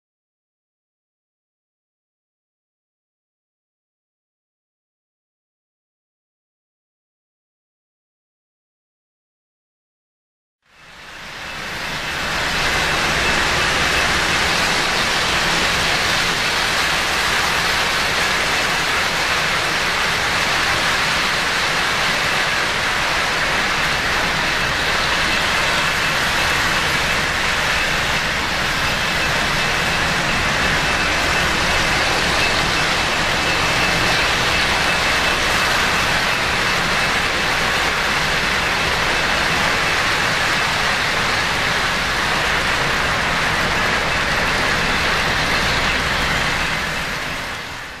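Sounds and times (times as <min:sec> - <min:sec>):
faint high whine: 0:10.7 - 0:48.0
model train rolling on track: 0:10.7 - 0:48.0.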